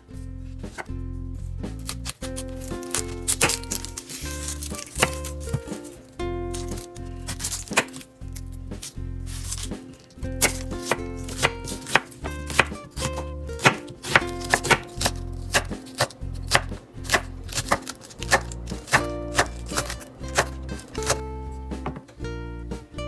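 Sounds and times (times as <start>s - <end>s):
knife chopping on wooden board: 2.0s - 5.8s, 6.5s - 8.0s, 10.4s - 21.2s.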